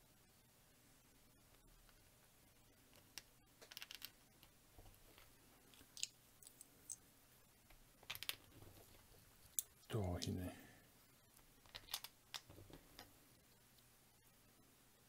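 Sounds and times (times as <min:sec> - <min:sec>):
plastic building bricks clicking: 0:02.9 - 0:04.5, 0:08.0 - 0:09.7, 0:11.6 - 0:13.1.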